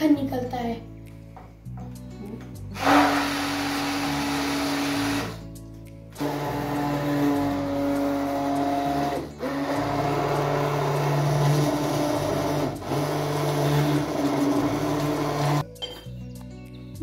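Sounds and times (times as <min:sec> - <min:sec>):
hand blender motor whirring: 0:02.8 - 0:05.4, 0:06.2 - 0:15.6.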